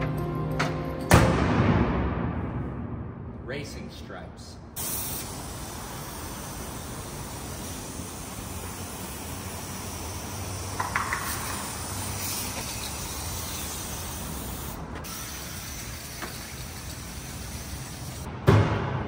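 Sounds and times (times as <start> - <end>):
spray can hissing: 4.8 - 18.3.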